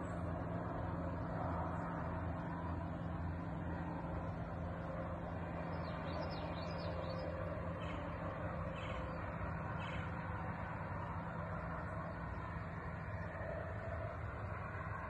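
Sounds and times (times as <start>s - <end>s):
low rumble with hum: 0.0s - 15.0s.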